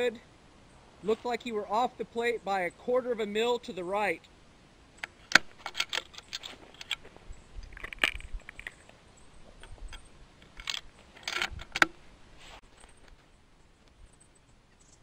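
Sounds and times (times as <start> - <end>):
rifle bolt clicks and rattles: 5.0 - 9.0, 9.6 - 12.0.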